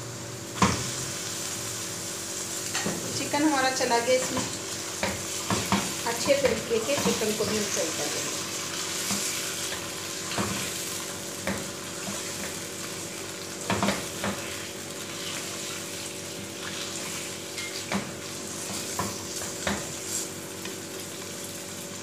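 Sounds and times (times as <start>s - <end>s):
chicken and onions sizzling in oil: 0.0s - 22.0s
spatula scraping and knocking pan: 4.2s - 7.8s.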